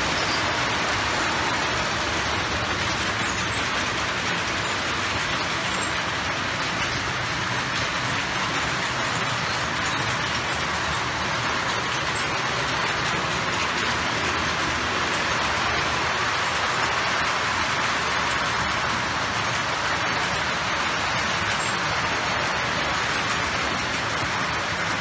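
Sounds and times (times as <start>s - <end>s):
model trains rolling on track: 0.0s - 25.0s.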